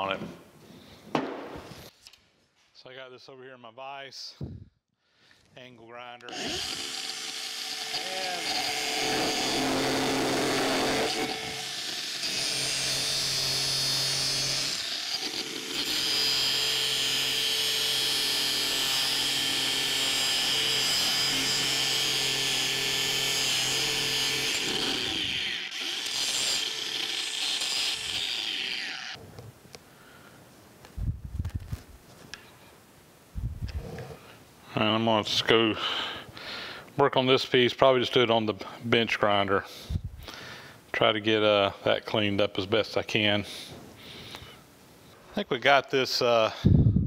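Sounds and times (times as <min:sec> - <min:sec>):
angle grinder grinding metal: 0:06.3 - 0:29.2.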